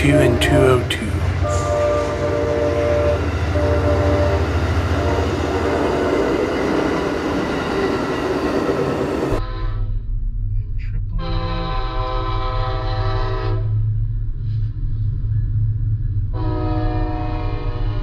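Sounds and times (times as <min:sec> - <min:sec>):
train horn chord: 0:00.0 - 0:06.4, 0:09.3 - 0:10.1, 0:11.2 - 0:13.8, 0:16.3 - 0:18.0
high steady tones: 0:00.0 - 0:08.9
train cars rumbling past: 0:00.0 - 0:18.0.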